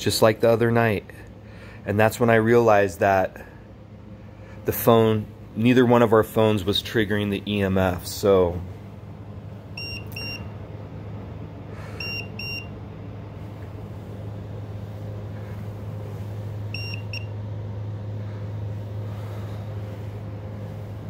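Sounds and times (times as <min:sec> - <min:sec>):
steady low hum: 0:00.0 - 0:21.0
high double beeps: 0:09.8 - 0:10.4, 0:12.0 - 0:12.7, 0:16.8 - 0:17.3.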